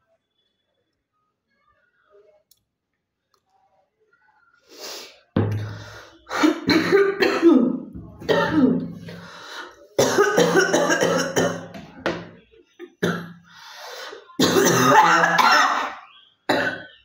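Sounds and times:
woman coughing: 6.3 - 9.2, 10.0 - 11.8, 14.4 - 16.9.

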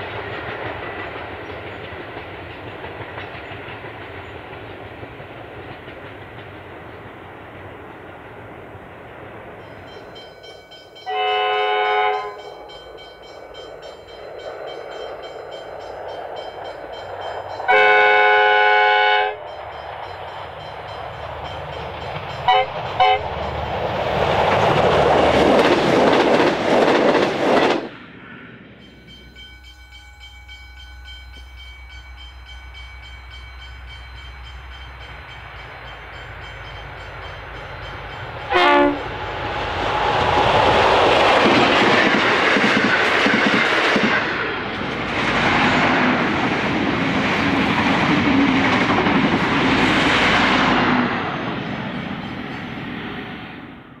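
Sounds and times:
diesel locomotive passing: 0.0 - 54.0
diesel railcars passing at speed: 0.0 - 54.0
train horn blast: 11.1 - 12.5, 17.7 - 19.5, 22.5 - 23.4, 38.5 - 39.1.

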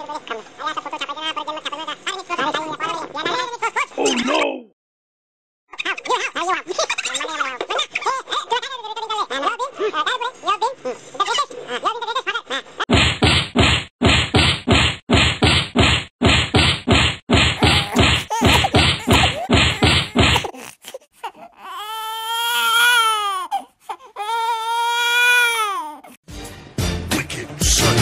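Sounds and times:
rapid whacks: 12.9 - 20.5.

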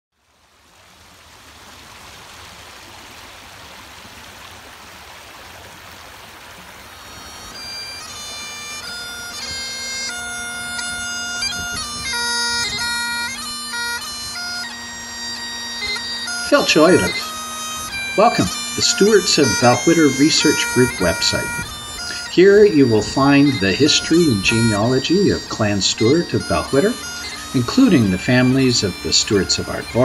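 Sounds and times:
bagpipe playing a tune: 6.9 - 30.0.

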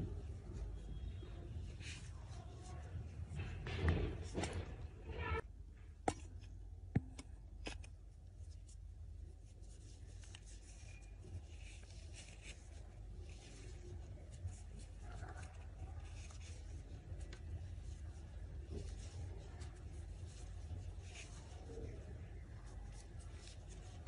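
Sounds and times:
yarn scratching and rustling: 7.6 - 24.0.

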